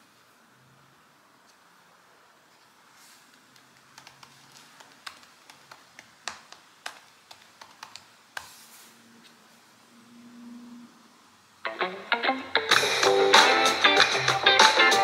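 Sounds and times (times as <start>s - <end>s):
computer keyboard clicks: 3.5s - 8.1s.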